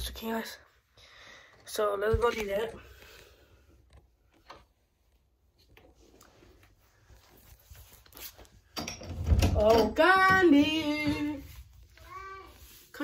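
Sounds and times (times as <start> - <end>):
faint taps and rustles: 9.6 - 12.9.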